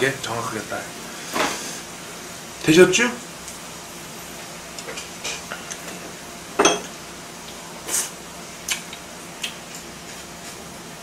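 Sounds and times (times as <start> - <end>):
utensils clinking against dishes: 6.6 - 6.9.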